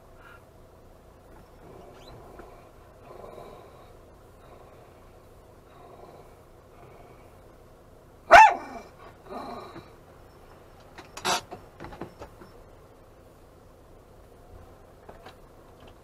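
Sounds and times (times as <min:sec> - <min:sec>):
dog barking: 0:08.3 - 0:08.9.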